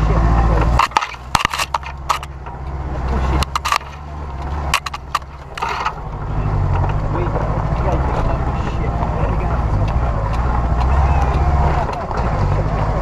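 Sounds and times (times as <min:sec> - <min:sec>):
motor engine running: 0:00.0 - 0:13.0
sharp knocks and rattles: 0:00.4 - 0:08.2.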